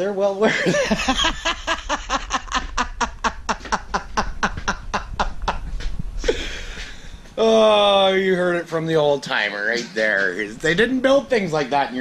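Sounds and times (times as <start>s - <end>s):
man laughing hard: 0.5s - 7.1s.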